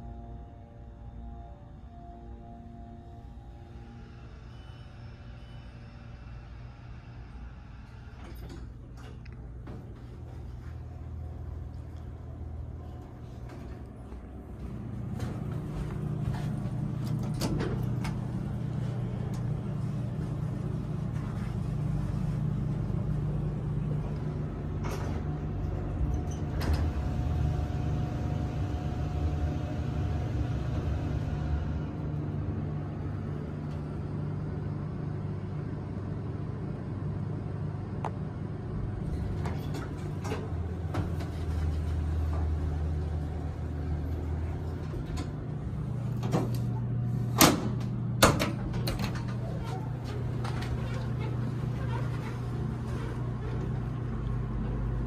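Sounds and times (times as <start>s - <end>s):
elevator car humming: 0.0s - 55.0s
elevator whine: 0.0s - 55.0s
elevator doors clicking and knocking: 14.5s - 22.3s, 23.0s - 29.1s, 38.9s - 55.0s.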